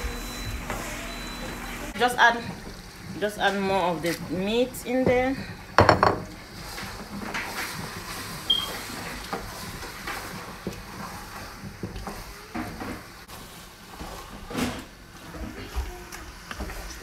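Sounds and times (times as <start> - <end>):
wooden spoon knocking and scraping pot: 3.5 - 13.0.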